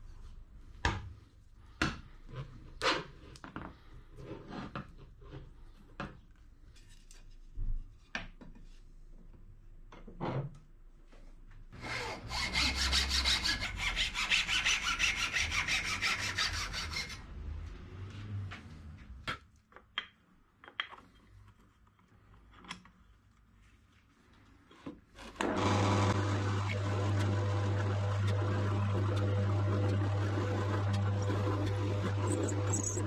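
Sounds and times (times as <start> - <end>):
hacksaw cutting wood: 11.8 - 17.2, 30.8 - 33.0
drill press motor humming: 25.4 - 33.0.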